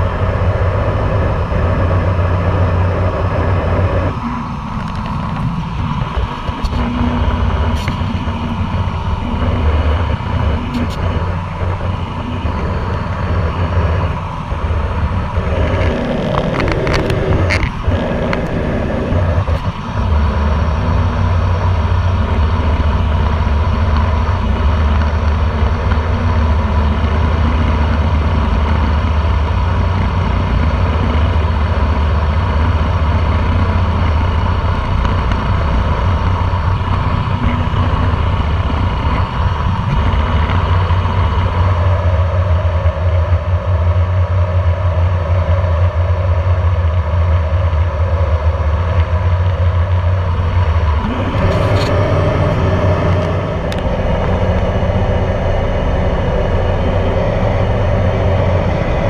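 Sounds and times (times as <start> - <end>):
wind buffeting microphone: 0.0 - 45.0
ship engines rumbling: 0.0 - 59.0.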